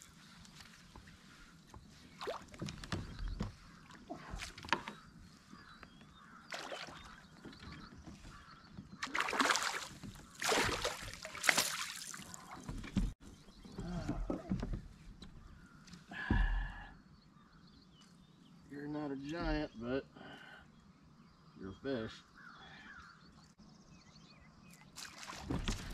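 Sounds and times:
fish thrashing and splashing water: 6.5 - 7.2, 9.0 - 12.8, 25.0 - 25.9.

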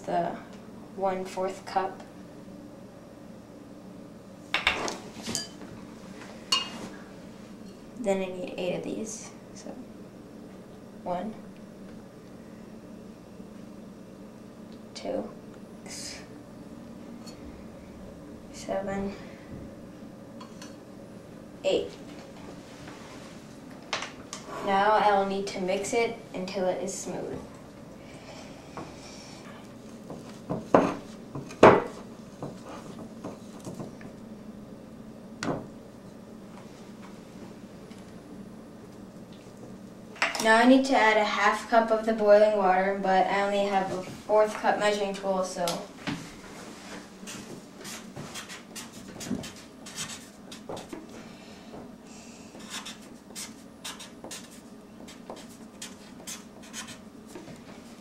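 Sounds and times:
marker scratching on paper: 47.3 - 50.6, 52.6 - 57.0.

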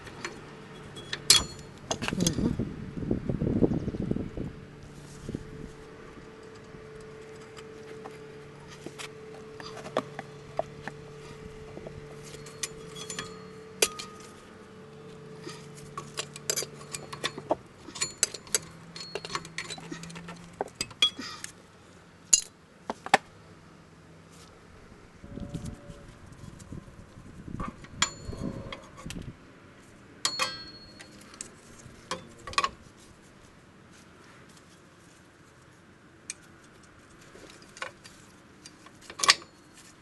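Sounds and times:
steady low hum: 0.0 - 40.0
hand tool clinking on metal: 0.2 - 2.4, 12.2 - 14.4, 15.4 - 21.4, 30.2 - 32.7.

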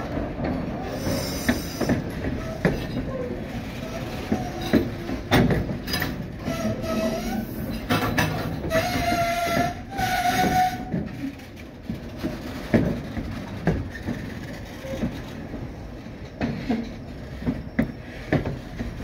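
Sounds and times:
train wheels clunking over rail joints: 0.0 - 19.0
train wheels squealing: 0.8 - 4.8, 5.9 - 11.0, 14.8 - 18.4.

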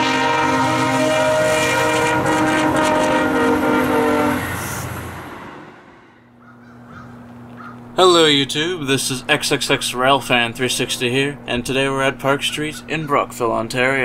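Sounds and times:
locomotive air horn chord: 0.0 - 6.3.

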